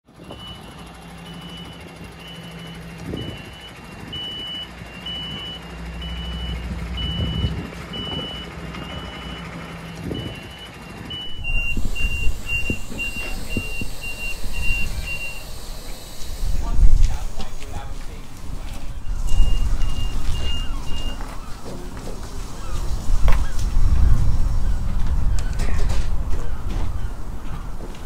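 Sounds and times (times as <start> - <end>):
forklift warning beeps: 0.1 - 23.5
low hum: 4.8 - 10.1, 11.1 - 28.0
forklift knocks and rumble: 5.1 - 15.2, 16.7 - 28.0.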